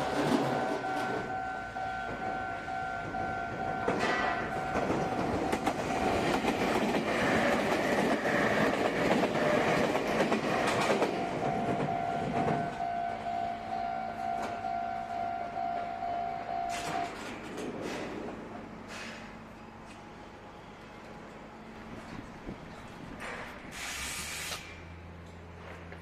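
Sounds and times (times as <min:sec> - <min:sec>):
level crossing warning bell: 0:00.0 - 0:06.2, 0:11.1 - 0:17.2
electric train running past: 0:00.0 - 0:23.7.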